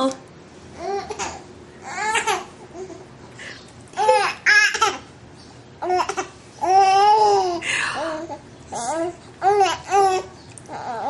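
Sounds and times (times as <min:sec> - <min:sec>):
baby cooing and giggling: 0:00.8 - 0:03.1, 0:05.8 - 0:11.0.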